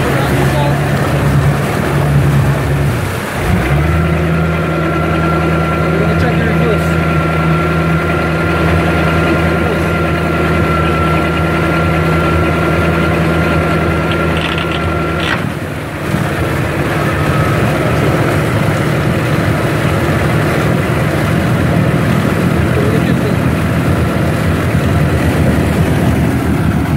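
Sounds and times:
boat engine running: 0.0s - 26.9s
propeller churning water: 0.0s - 26.9s.

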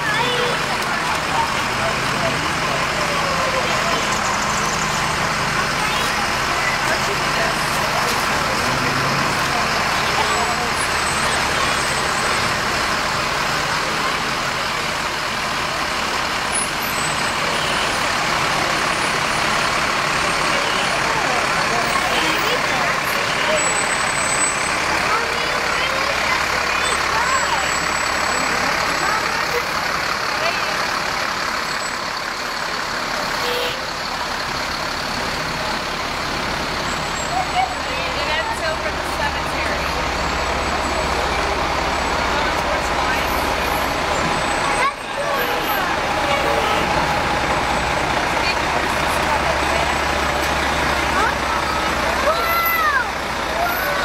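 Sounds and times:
fire engines rumbling past: 0.0s - 54.0s.

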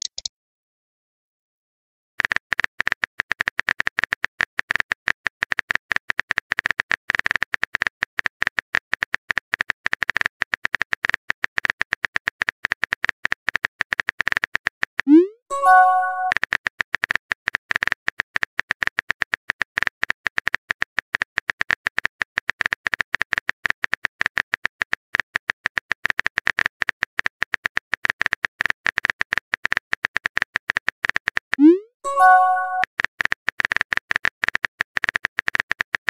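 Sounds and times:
phone keyboard typing clicks: 0.0s - 0.3s, 25.7s - 36.0s
chiming message-sent tone: 15.1s - 16.4s, 31.6s - 32.8s.

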